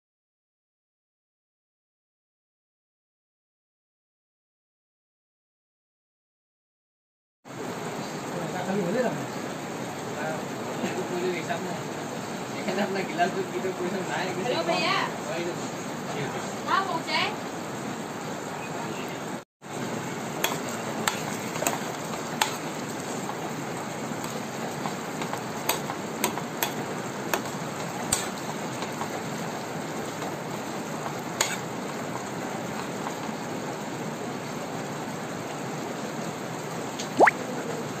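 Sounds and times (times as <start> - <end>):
food sizzling in a pan: 19.6 - 35.0
spoon clicking against pan: 20.4 - 22.6, 25.2 - 26.8, 27.4 - 29.0.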